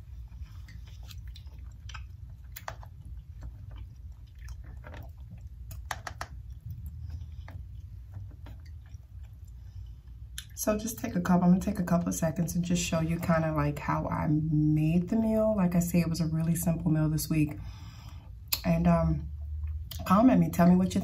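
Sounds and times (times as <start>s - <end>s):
chewing with wet mouth clicks: 0.0s - 10.6s, 18.4s - 18.7s, 19.4s - 20.1s
low steady hum: 0.0s - 21.0s.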